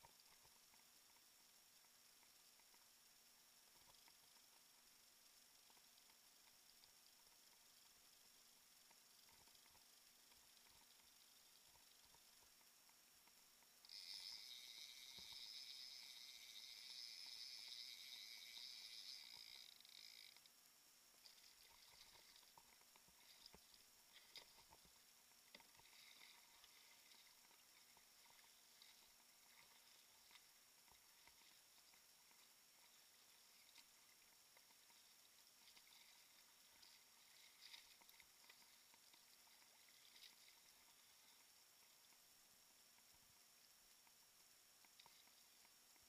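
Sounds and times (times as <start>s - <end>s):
faint high hiss: 0.0s - 46.0s
faint hum: 0.0s - 46.0s.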